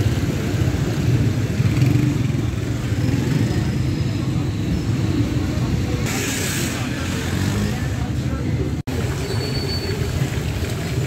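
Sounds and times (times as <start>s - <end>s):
motorcycle engines rumbling: 0.0s - 11.0s.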